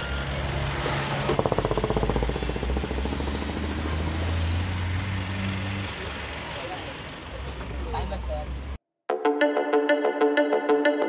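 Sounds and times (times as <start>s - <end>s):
bus engine idling: 0.0s - 8.8s
loud fast rattle: 1.2s - 4.2s.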